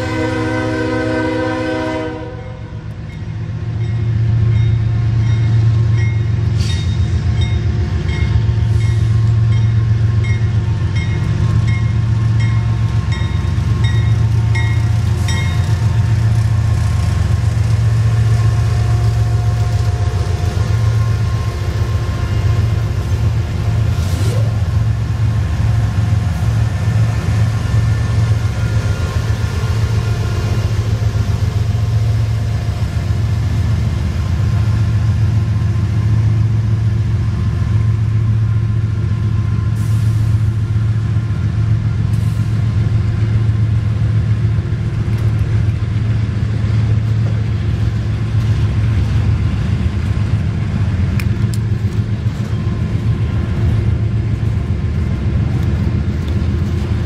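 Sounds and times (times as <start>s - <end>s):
train horn blast: 0.0s - 2.9s
diesel locomotive engines rumbling: 0.0s - 57.0s.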